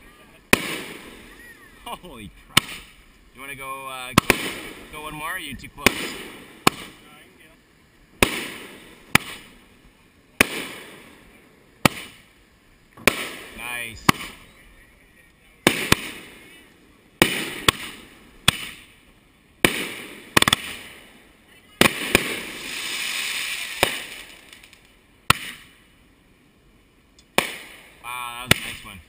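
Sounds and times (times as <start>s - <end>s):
fireworks bangs: 0.0s - 12.4s, 13.0s - 14.5s, 15.6s - 19.0s, 19.6s - 25.8s, 27.2s - 29.0s
fireworks crackling: 0.0s - 26.4s, 27.0s - 29.0s.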